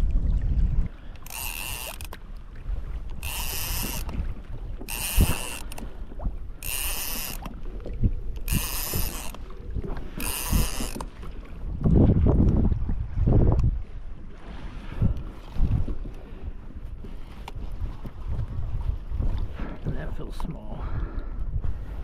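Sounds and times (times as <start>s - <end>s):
spinning fishing reel: 1.2s - 2.2s, 3.1s - 4.2s, 4.8s - 5.8s, 6.6s - 7.5s, 8.4s - 9.4s, 10.2s - 11.2s.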